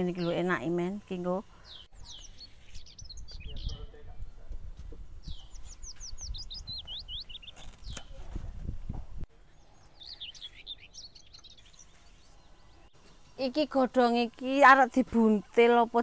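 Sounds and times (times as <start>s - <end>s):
songbird chirping: 0.0s - 4.6s, 5.2s - 8.2s, 9.4s - 15.5s.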